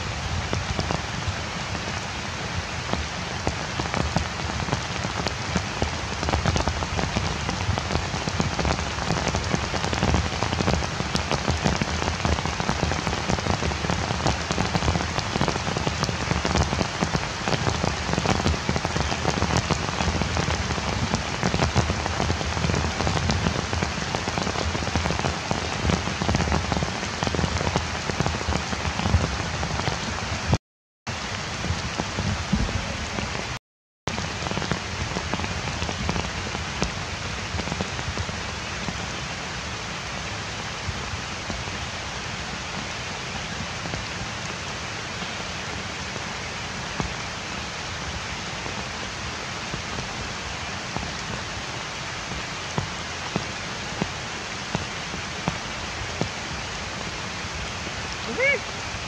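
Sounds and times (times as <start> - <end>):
heavy rain on leaves: 0.0 - 59.0.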